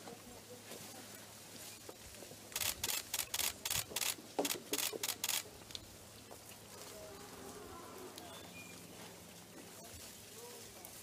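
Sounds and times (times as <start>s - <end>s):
camera shutters clicking: 2.6s - 5.5s.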